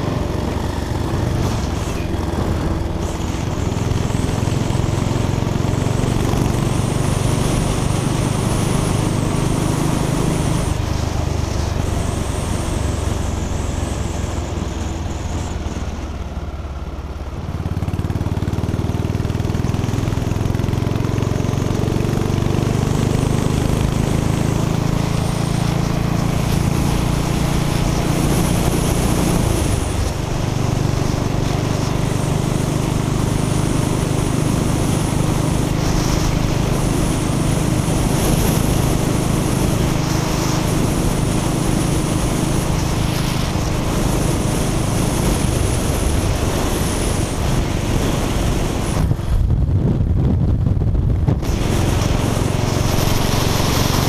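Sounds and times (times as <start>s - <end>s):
motorcycle engine running: 0.0s - 54.0s
wind noise: 21.6s - 54.0s.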